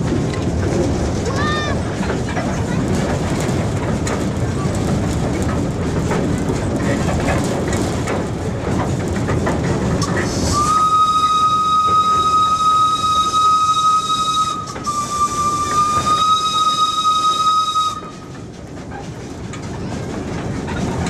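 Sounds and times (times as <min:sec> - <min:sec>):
steam locomotive clattering rumble: 0:00.0 - 0:21.0
steam whistle blast: 0:10.4 - 0:18.2.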